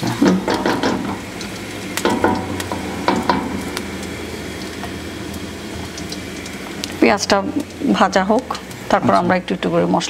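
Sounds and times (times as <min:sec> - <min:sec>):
spatula scraping and knocking pot: 0:00.0 - 0:01.3, 0:02.0 - 0:03.8
onions sizzling in oil: 0:00.0 - 0:10.0.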